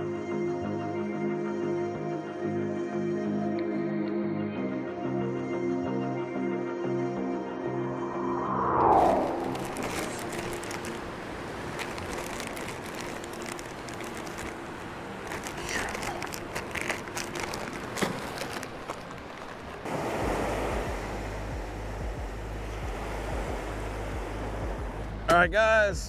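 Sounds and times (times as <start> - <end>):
wind buffeting microphone: 8.0 - 12.9, 13.6 - 25.2
surf breaking on beach: 8.9 - 25.0
plastic zip bag crinkling: 9.4 - 19.9.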